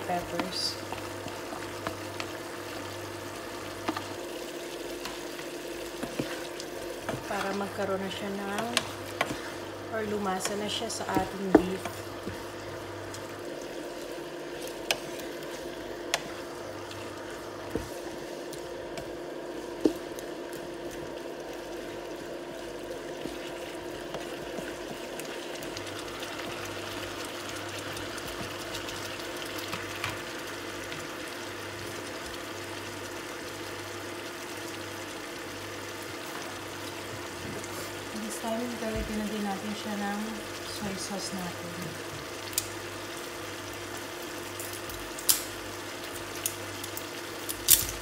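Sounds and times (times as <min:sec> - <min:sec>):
food simmering in a pan: 0:00.0 - 0:48.0
wooden spatula tapping a pan: 0:10.4 - 0:12.4.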